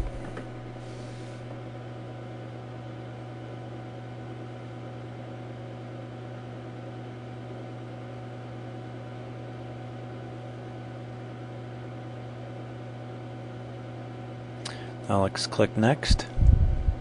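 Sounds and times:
low hum: 16.1 - 17.0.

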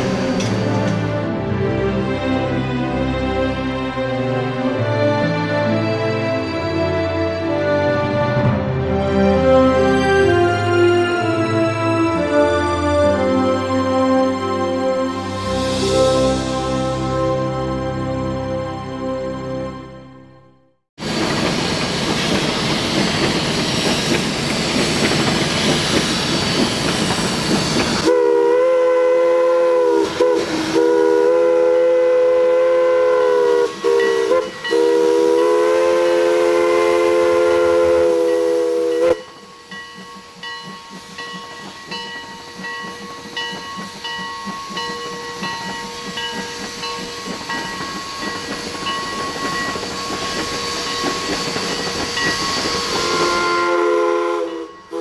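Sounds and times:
steam whistle blowing: 15.2 - 17.8, 27.9 - 39.4, 49.0 - 55.0
steam hissing: 21.0 - 55.0.

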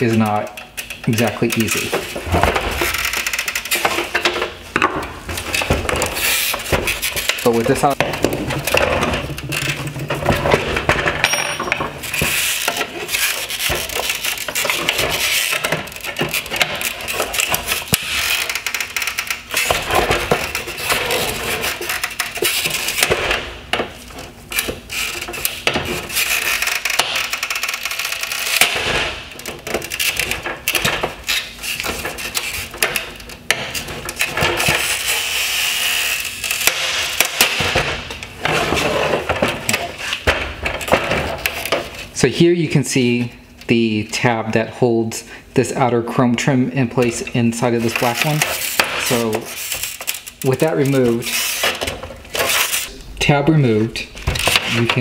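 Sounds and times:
plastic trim squeaking and creaking: 0.0 - 11.2, 12.0 - 42.1.

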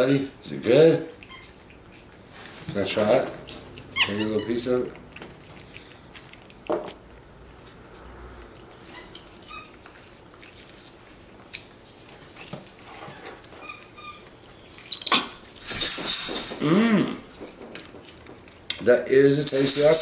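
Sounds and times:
monkey peeping: 1.1 - 2.3, 3.4 - 6.0, 8.8 - 10.2, 13.5 - 15.6.

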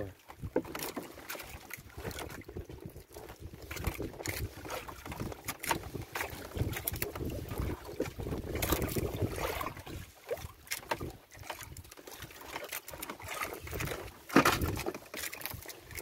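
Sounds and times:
water lapping against wooden boat: 0.0 - 16.0
wind buffeting microphone: 2.0 - 10.2.

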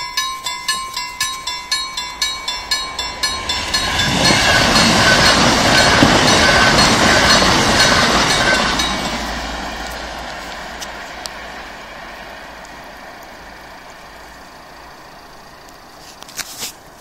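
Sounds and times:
level crossing warning bell: 0.0 - 9.7
high-speed train passing: 0.0 - 16.0.

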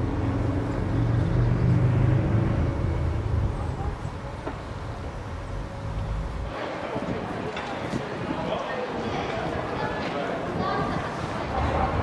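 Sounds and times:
vehicle engine drone: 0.0 - 6.5.

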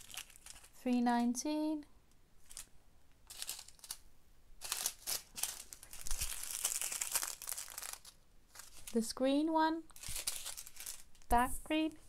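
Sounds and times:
plastic bags crinkling: 0.0 - 0.8, 2.4 - 4.0, 4.6 - 9.1, 9.9 - 11.4.

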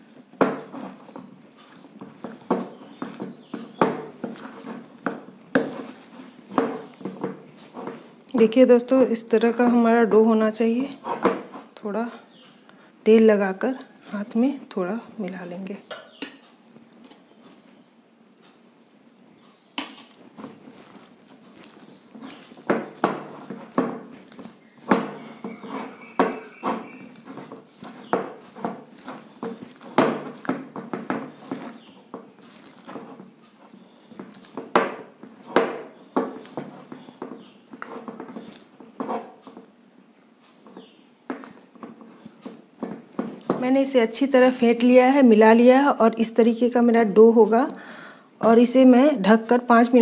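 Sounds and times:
dough slapping against bowl: 0.0 - 8.6, 19.8 - 43.9.

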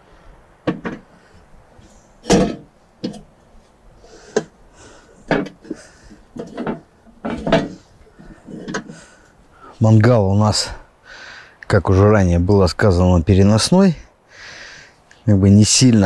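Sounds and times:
metal grill clanks and knocks: 2.2 - 3.3, 5.3 - 5.8, 6.4 - 7.8.

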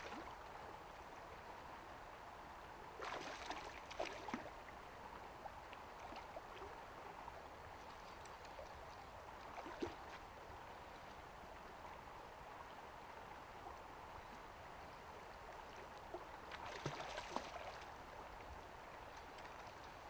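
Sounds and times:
small drips and splashes: 3.0 - 4.5, 7.8 - 10.2, 15.5 - 18.0, 19.0 - 20.0.

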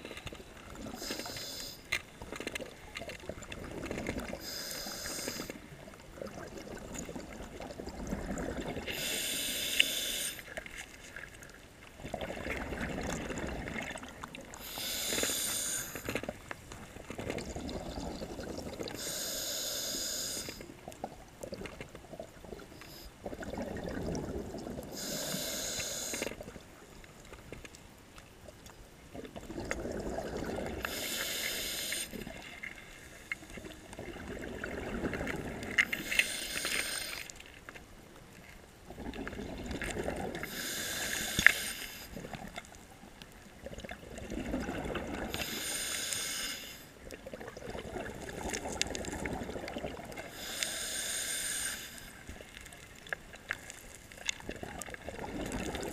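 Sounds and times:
diving regulator hissing: 1.0 - 1.8, 8.9 - 10.5, 14.6 - 16.1, 19.0 - 20.6, 24.9 - 26.4, 30.8 - 32.2, 35.9 - 37.3, 40.4 - 42.1, 45.4 - 46.9, 50.3 - 52.2
exhaled bubbles rumbling: 2.2 - 4.4, 5.7 - 9.0, 11.4 - 14.7, 16.2 - 19.0, 20.8 - 25.3, 29.1 - 30.9, 33.6 - 36.0, 38.8 - 40.6, 43.5 - 45.4, 47.0 - 50.3, 54.1 - 55.9.

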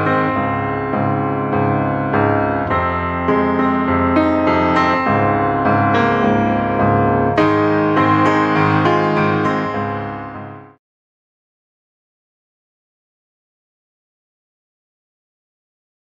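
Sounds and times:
piano playing notes and chords: 0.0 - 10.8.

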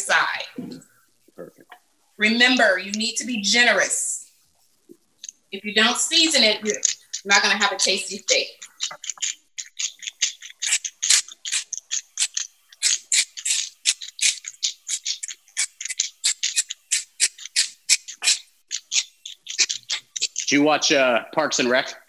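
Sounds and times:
pepper mill grinding: 5.8 - 20.6.

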